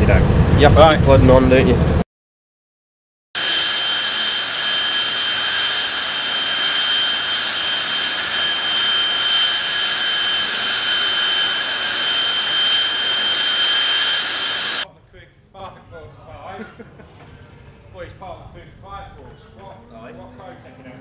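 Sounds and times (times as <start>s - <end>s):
jet engine whine: 3.4s - 14.9s.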